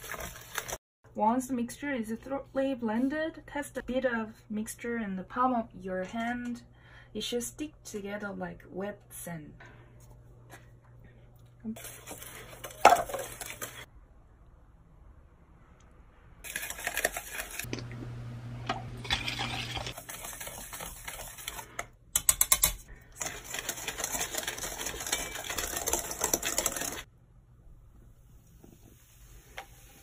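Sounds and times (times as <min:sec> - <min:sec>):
powder scraping metal bowl: 0:16.4 - 0:17.7, 0:19.0 - 0:21.8, 0:23.2 - 0:27.1.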